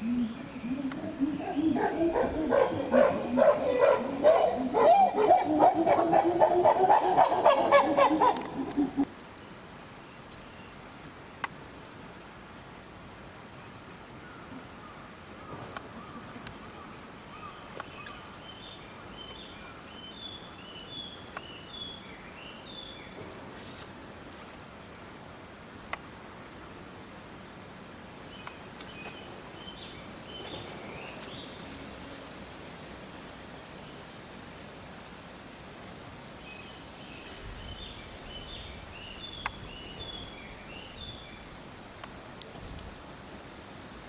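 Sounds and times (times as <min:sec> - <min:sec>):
songbird singing: 0:00.0 - 0:10.9, 0:13.5 - 0:23.3, 0:28.2 - 0:31.9, 0:36.3 - 0:42.2
outdoor background noise: 0:00.0 - 0:44.0.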